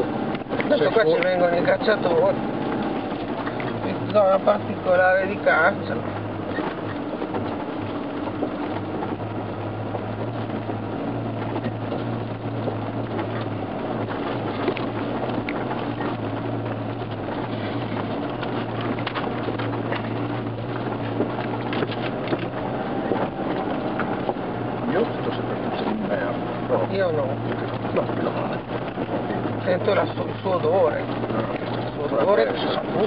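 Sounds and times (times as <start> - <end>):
tyres rumbling on gravel: 0.0 - 33.0
vehicle engine hum: 0.0 - 33.0
knocks and rattles from bumps: 5.8 - 33.0.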